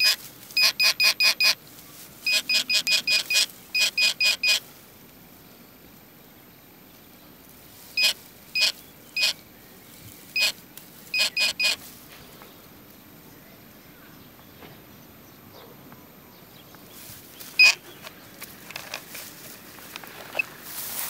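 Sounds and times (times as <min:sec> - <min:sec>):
metal detector beeping: 0:00.0 - 0:01.6, 0:02.2 - 0:04.6, 0:08.0 - 0:09.4, 0:10.3 - 0:11.8, 0:17.5 - 0:18.1.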